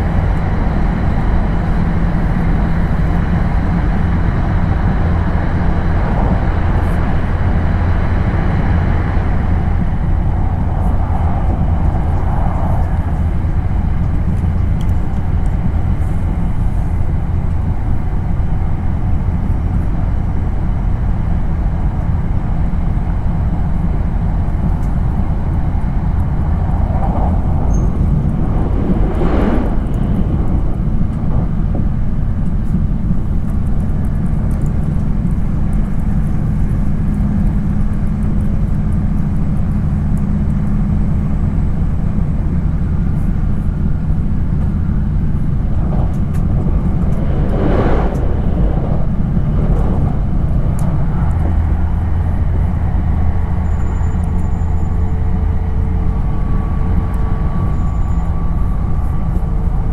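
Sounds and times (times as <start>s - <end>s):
low steady hum: 0.0s - 59.9s
train running noise: 0.0s - 59.9s
brief loud whoosh: 27.0s - 31.5s, 45.8s - 51.5s.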